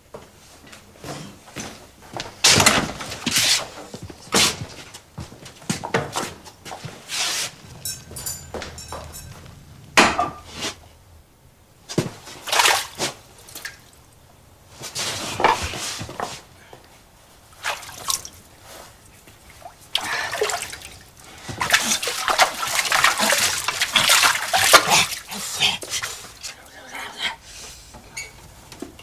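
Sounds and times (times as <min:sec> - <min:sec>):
hands splashing water: 0:12.4 - 0:14.0, 0:17.6 - 0:18.4, 0:19.5 - 0:26.1.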